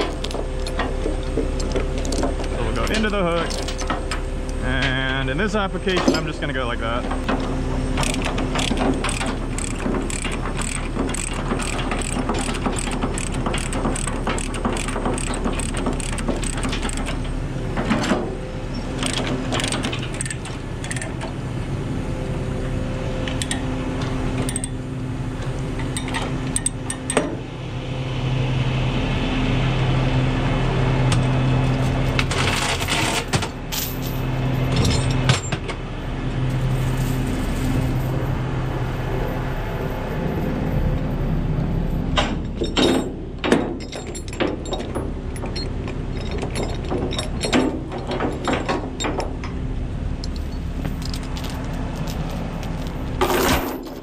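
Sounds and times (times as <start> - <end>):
metal chain clanking: 0.0 - 5.2, 7.1 - 21.3, 32.3 - 35.5, 42.2 - 49.4, 50.2 - 54.0
engine idling: 0.0 - 32.6.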